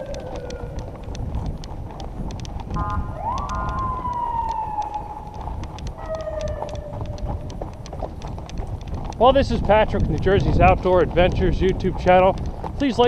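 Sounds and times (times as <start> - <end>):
bike rumbling over track: 0.0 - 13.0
rattling clicks: 0.0 - 13.0
wailing tone falling: 2.8 - 7.4.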